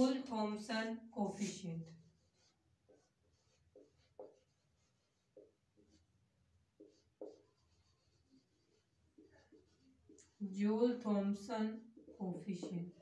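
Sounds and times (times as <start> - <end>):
marker squeaking on whiteboard: 1.3 - 10.4, 11.7 - 13.0.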